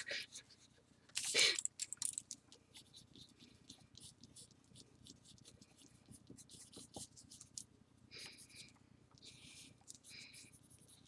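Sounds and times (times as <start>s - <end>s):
pencil scratching on paper: 2.7s - 7.6s, 9.3s - 11.0s.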